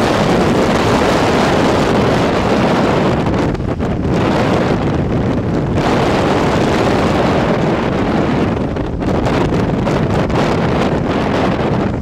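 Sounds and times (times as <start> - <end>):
road noise: 0.0 - 12.0
wind buffeting microphone: 0.0 - 12.0.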